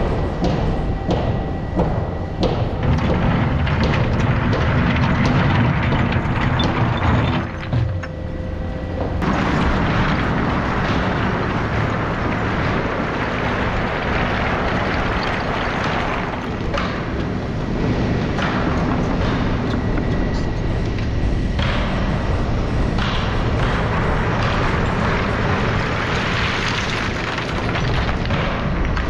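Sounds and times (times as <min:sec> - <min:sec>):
excavator engine and hydraulics: 0:00.0 - 0:29.0
rock scraping and clattering: 0:02.9 - 0:08.4, 0:09.0 - 0:17.5, 0:24.3 - 0:29.0.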